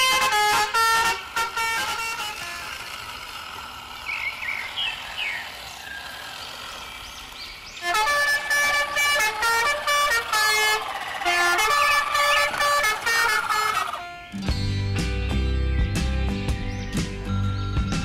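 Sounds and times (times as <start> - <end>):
vehicle horn honking: 0.0 - 3.0, 7.8 - 14.3
faint chirping glides: 3.8 - 12.8.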